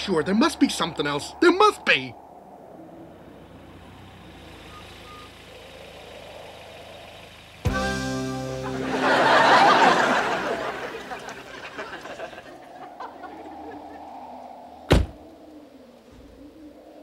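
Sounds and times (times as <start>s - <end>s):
door slamming shut: 14.9s - 15.2s.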